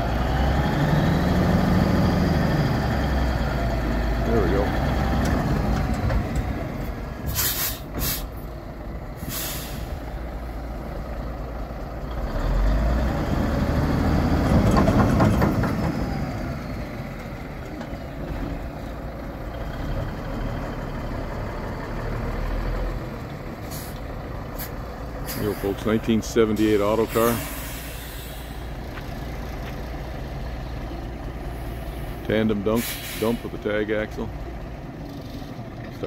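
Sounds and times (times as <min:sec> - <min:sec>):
diesel truck engine running: 0:00.0 - 0:36.0
air brake hisses: 0:07.3 - 0:08.4, 0:09.2 - 0:10.0, 0:27.0 - 0:28.7, 0:32.8 - 0:33.5.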